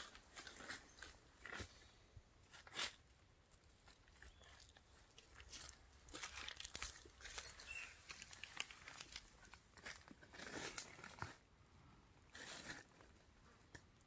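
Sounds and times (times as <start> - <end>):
dry leaves crackling and rustling: 4.2 - 11.2.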